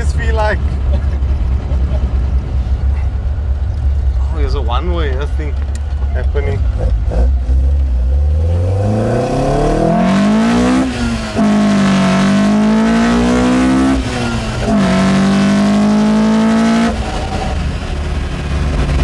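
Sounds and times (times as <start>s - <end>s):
car engine revving hard: 6.7s - 19.0s.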